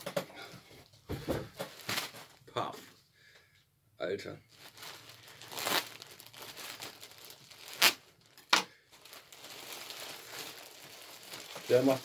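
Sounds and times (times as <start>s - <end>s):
sharp plastic crackles: 1.6s - 2.4s, 4.5s - 12.0s
plastic bag crinkling: 4.5s - 12.0s.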